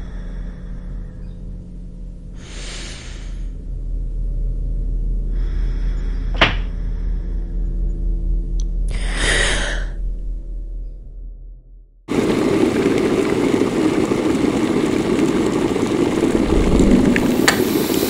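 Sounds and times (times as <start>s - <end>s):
low rumbling drone: 0.0s - 12.0s, 15.8s - 18.0s
whooshes: 16.2s - 18.0s.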